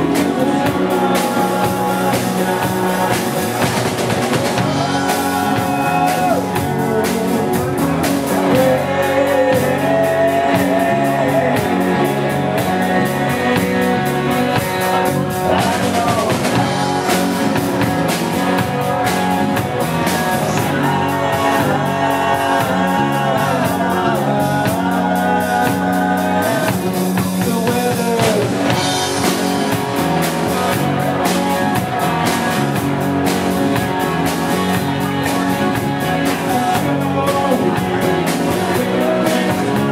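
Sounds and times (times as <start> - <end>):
man singing: 0.0 - 29.9, 35.2 - 39.9
drum kit beat: 0.0 - 39.9
electric guitar: 0.0 - 39.9.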